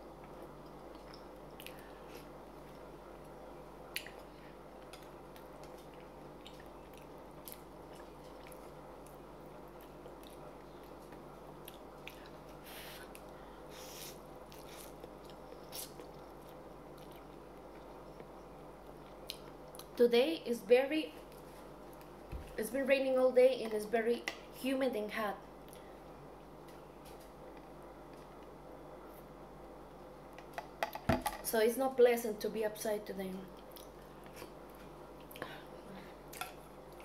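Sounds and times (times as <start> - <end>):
steady low hum: 0.0 - 37.0
chewing: 0.2 - 2.8, 3.9 - 13.3, 14.5 - 19.9.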